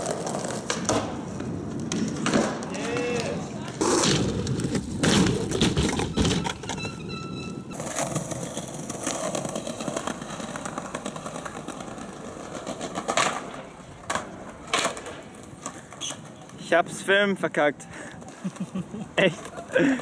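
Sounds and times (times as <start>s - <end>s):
loud skateboard impact: 0.0s - 6.7s
skateboard clacks: 0.0s - 16.7s, 18.1s - 20.0s
skateboard wheels rolling on concrete: 0.0s - 20.0s.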